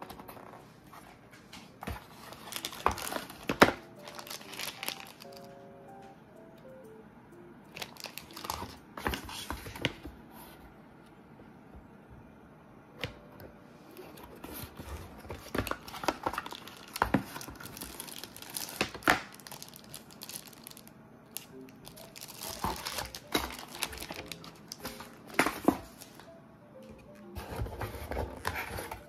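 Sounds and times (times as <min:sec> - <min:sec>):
cardboard rustling: 0:00.0 - 0:05.4, 0:14.0 - 0:20.8, 0:21.4 - 0:26.2, 0:27.4 - 0:29.0
soft background music: 0:00.0 - 0:11.0, 0:12.1 - 0:29.0
plastic bag crinkling: 0:02.1 - 0:05.5, 0:07.8 - 0:09.8, 0:14.9 - 0:26.2.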